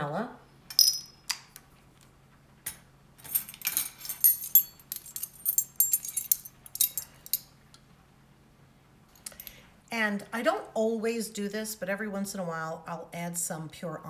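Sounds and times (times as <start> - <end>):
metal spoons clinking: 3.2 - 7.5.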